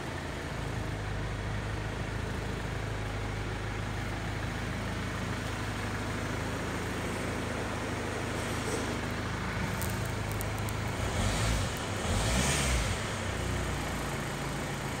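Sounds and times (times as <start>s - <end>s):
diesel engine revving: 6.6s - 15.0s.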